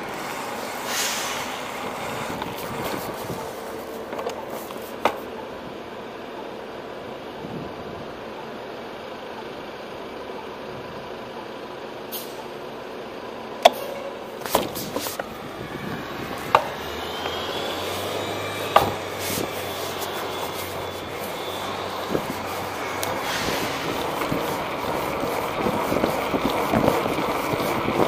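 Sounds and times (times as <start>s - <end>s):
city street traffic: 0.0s - 28.0s
low engine hum: 12.6s - 28.0s
faint rising whine: 14.9s - 27.7s.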